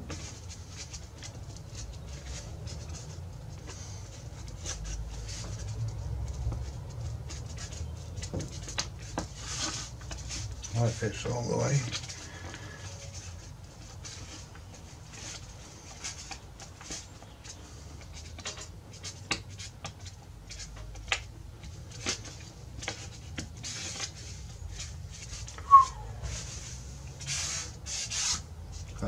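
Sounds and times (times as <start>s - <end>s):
sharp squeak: 25.6s - 26.1s.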